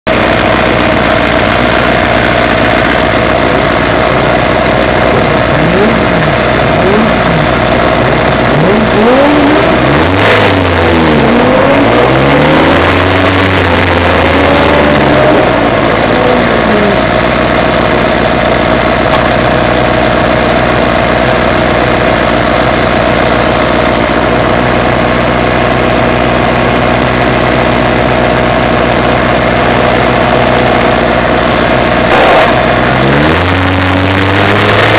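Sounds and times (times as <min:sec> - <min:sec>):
racing engine idling and revving: 0:00.1 - 0:34.9.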